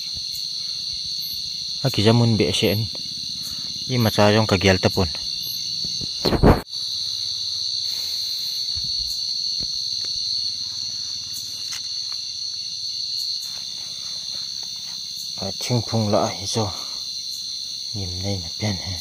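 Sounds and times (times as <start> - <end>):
night insects trilling: 0.0 - 19.0
loud thump: 6.0 - 6.6.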